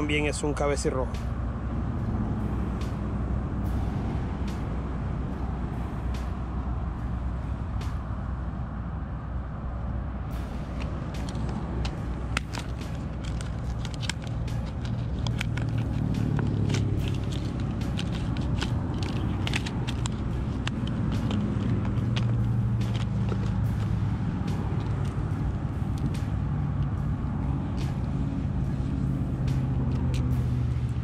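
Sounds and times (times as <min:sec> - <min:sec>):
steady low rumble: 0:00.0 - 0:31.0.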